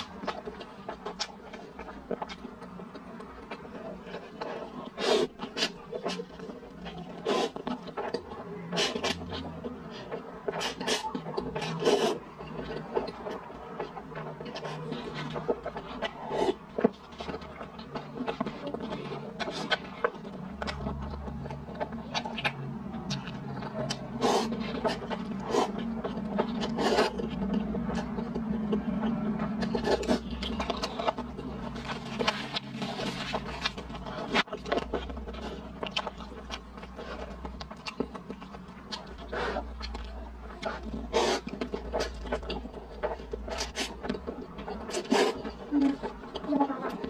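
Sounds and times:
chewing: 0:00.0 - 0:47.0
slurping noodles: 0:04.4 - 0:06.2, 0:07.1 - 0:08.1, 0:10.5 - 0:12.3, 0:14.5 - 0:16.9, 0:24.0 - 0:27.3, 0:40.6 - 0:44.0, 0:44.8 - 0:45.6.

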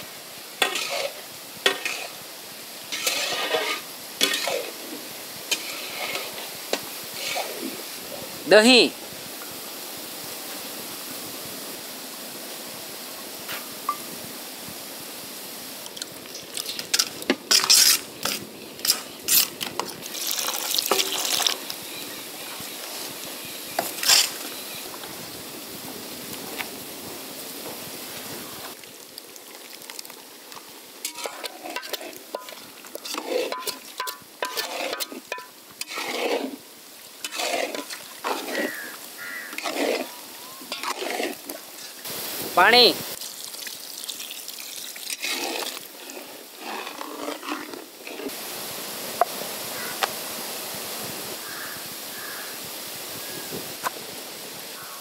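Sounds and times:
steady hiss: 0:00.0 - 0:46.9, 0:47.8 - 0:55.0
spatula scraping in wok: 0:00.6 - 0:02.2, 0:02.9 - 0:07.8, 0:16.4 - 0:24.8, 0:31.0 - 0:42.1, 0:45.0 - 0:48.4
spoon scraping steel bowl: 0:00.6 - 0:02.2, 0:02.9 - 0:04.8, 0:05.5 - 0:06.4, 0:07.1 - 0:07.6, 0:23.7 - 0:24.8, 0:31.0 - 0:36.6, 0:37.2 - 0:42.0, 0:45.1 - 0:48.3.

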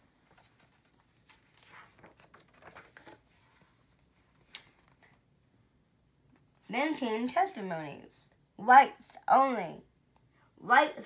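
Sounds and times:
book page turning: 0:00.2 - 0:05.2.

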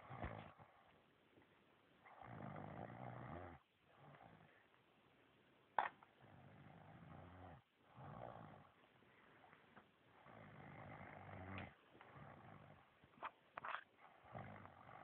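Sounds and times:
man snoring: 0:02.2 - 0:03.6, 0:10.2 - 0:12.7.

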